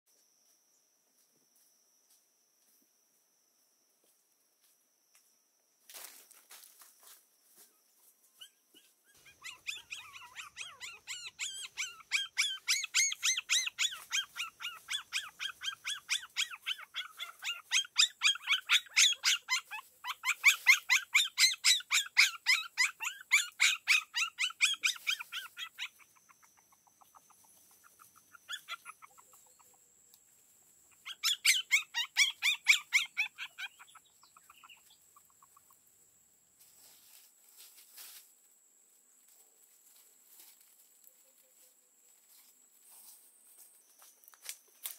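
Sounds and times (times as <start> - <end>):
newborn puppies squealing: 8.4 - 29.6, 30.9 - 35.5.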